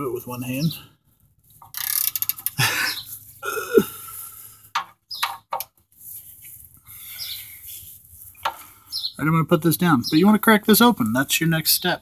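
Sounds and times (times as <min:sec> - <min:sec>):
ratchet clicking: 0:01.6 - 0:02.6
person grunting with effort: 0:03.4 - 0:04.0.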